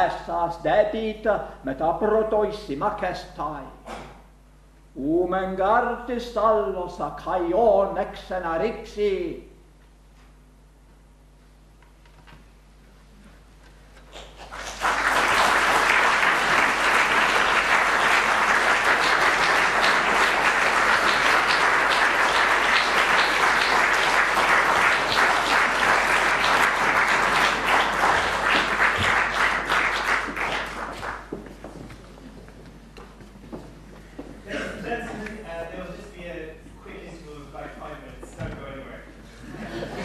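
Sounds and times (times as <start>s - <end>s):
audience applauding: 14.1s - 31.5s.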